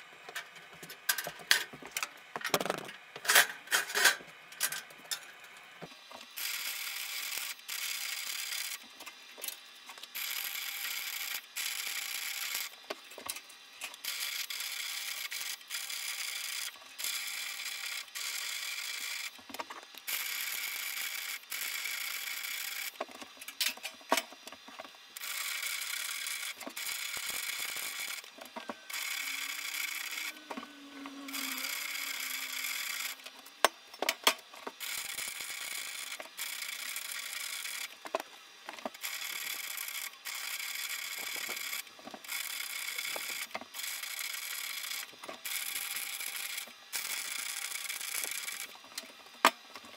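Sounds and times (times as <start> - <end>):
welding arc crackling: 25.5 - 28.3.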